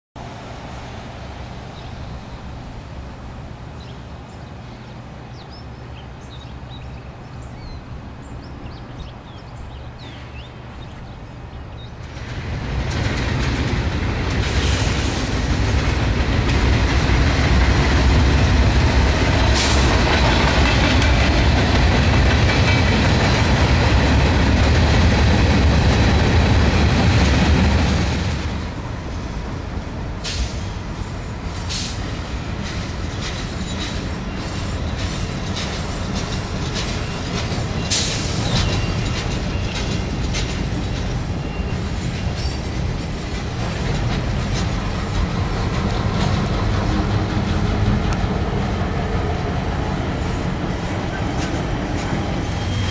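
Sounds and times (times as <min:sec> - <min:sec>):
diesel locomotive engine passing: 0:00.2 - 0:52.9
freight cars rolling past: 0:06.2 - 0:52.9
steel wheels on rails: 0:12.0 - 0:52.9.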